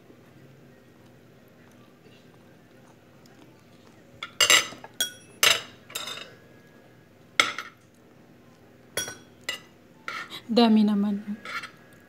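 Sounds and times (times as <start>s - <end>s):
cutlery clinking on a plate: 4.2s - 6.4s, 7.4s - 7.8s, 9.0s - 10.3s, 11.4s - 11.8s.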